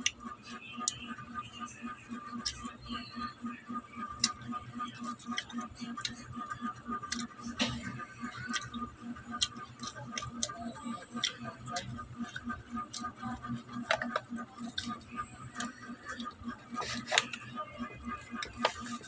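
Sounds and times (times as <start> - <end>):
steady pulsing hum: 0.0 - 19.0
chewing clicks and smacks: 2.4 - 2.7, 4.1 - 6.3, 6.9 - 7.4, 8.3 - 18.9.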